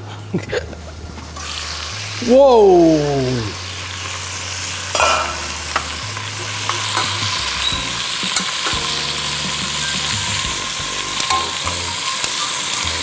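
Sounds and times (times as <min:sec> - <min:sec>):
meat sizzling in hot oil: 0:01.2 - 0:13.0
metal tongs clinking on pot: 0:04.9 - 0:07.7, 0:11.2 - 0:12.8.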